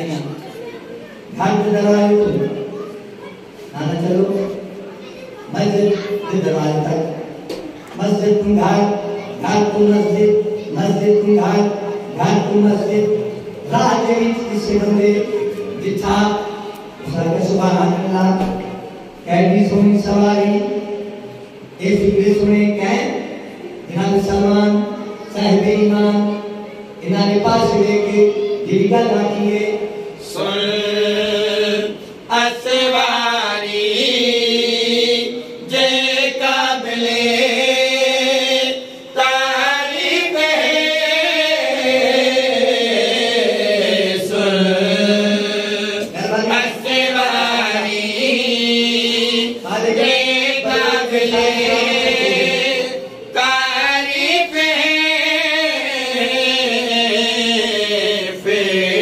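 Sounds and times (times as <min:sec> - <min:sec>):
men chanting together: 0:29.8 - 0:59.0.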